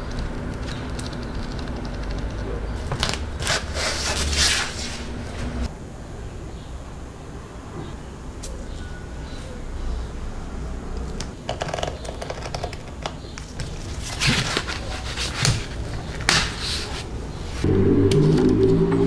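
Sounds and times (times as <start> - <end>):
low drone of steady tones: 17.6 - 19.0.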